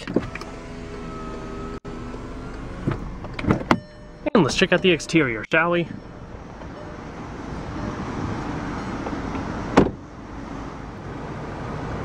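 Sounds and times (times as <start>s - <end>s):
car engine idling: 0.0s - 11.0s
car door thud: 2.8s - 3.9s, 9.0s - 10.1s.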